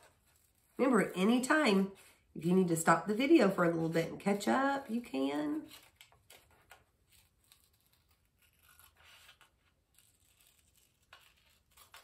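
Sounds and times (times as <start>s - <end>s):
scissors cutting paper: 3.8s - 12.0s.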